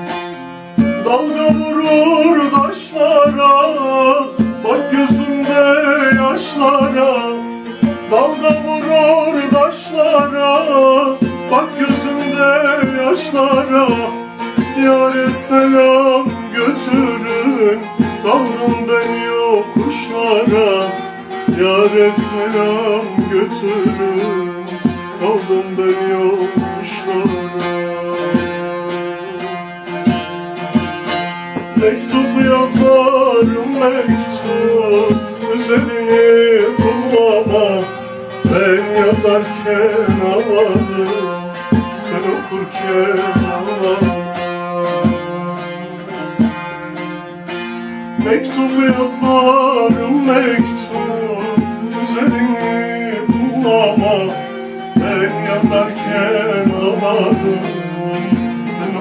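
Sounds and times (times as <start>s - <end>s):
man singing a folk song: 0.0s - 59.0s
plucked long-necked lute: 0.0s - 59.0s.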